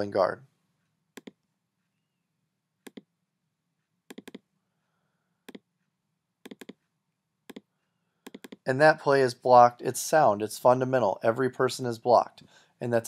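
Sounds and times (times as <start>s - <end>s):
computer mouse clicking: 1.2s - 1.5s, 2.8s - 3.1s, 4.1s - 4.5s, 5.4s - 5.7s, 6.4s - 6.9s, 7.5s - 8.7s.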